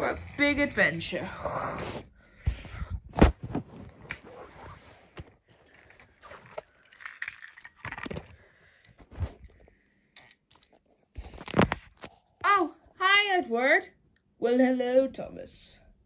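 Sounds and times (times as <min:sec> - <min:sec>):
phone handling rustles and scrapes: 0:02.0 - 0:06.7, 0:09.0 - 0:12.3.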